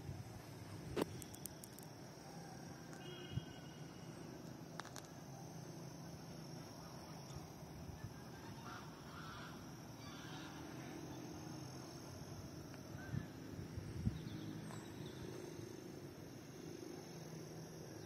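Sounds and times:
distant animal calls: 8.3 - 11.0.

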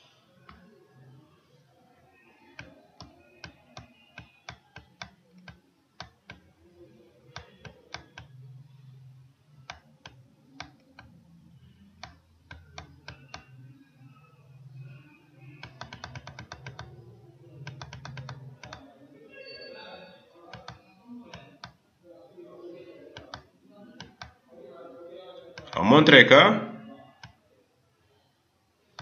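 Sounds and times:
mouse and keyboard clicks: 2.5 - 6.5, 7.3 - 8.5, 9.5 - 11.2, 12.0 - 13.6, 14.8 - 16.9, 17.6 - 18.8, 20.5 - 21.8, 23.1 - 24.3.

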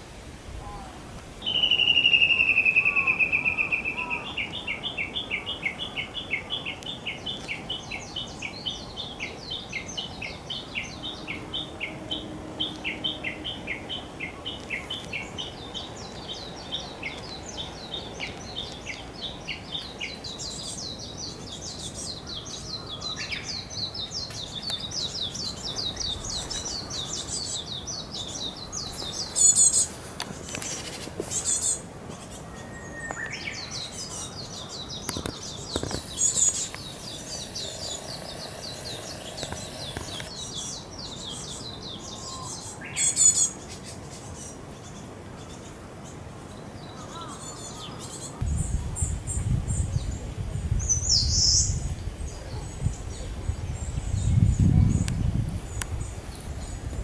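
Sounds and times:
songbirds chirping: 0.0 - 57.0
sharp bird calls: 0.6 - 45.8.

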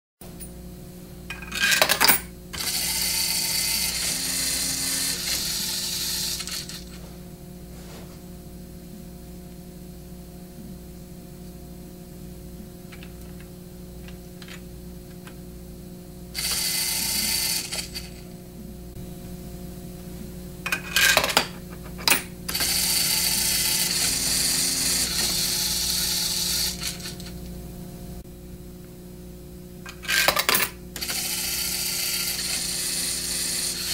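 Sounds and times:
motors whirring through gears: 2.6 - 7.0, 16.4 - 18.2, 22.5 - 27.4, 31.0 - 33.9.

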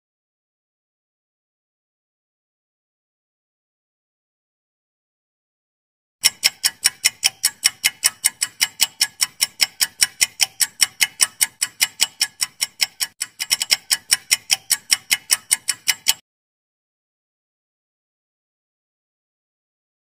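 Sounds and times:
clock-like ticking: 6.2 - 16.2.

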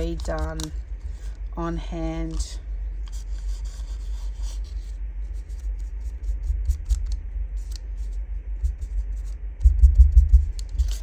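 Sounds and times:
low rumble: 4.3 - 11.0
foam tool rubbing paper: 10.6 - 11.0.

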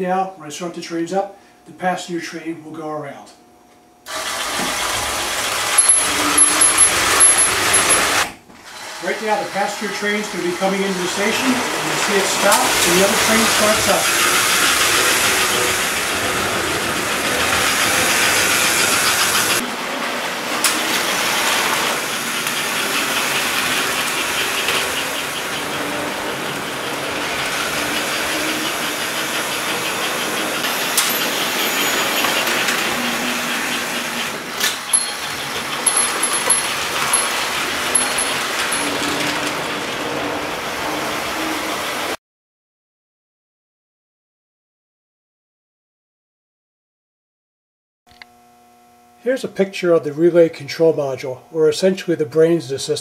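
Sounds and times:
toy train motors whirring: 4.1 - 42.0.

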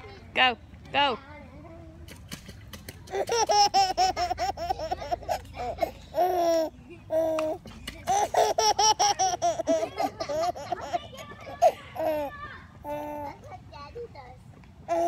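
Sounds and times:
baby laughing: 3.1 - 12.3.

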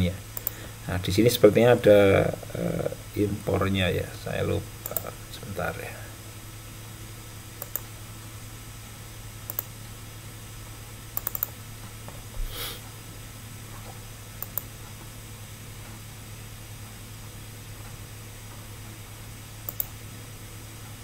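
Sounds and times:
low electrical hum: 0.0 - 21.0
computer mouse clicks: 0.4 - 0.6, 4.8 - 5.1, 7.6 - 7.9, 9.5 - 9.7, 11.2 - 11.6, 13.8 - 14.7, 19.6 - 20.0.

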